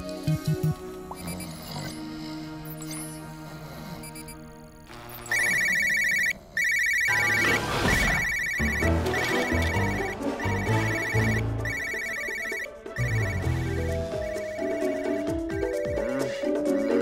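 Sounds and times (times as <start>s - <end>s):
low background music: 0.0s - 5.6s, 8.6s - 17.0s
smartphone ringtone trill: 5.1s - 17.0s.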